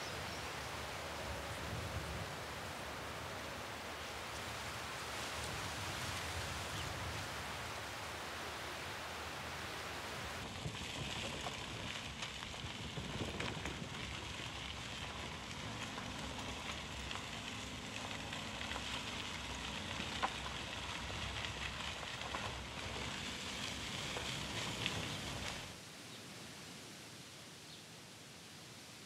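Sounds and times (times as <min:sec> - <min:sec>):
tyres rolling on dirt road: 0:00.0 - 0:25.8
grit and stones clicking: 0:10.5 - 0:25.7.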